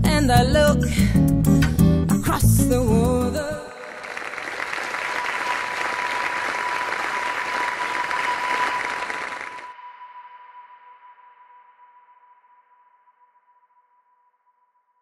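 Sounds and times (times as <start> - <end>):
audience applauding: 3.7 - 9.7.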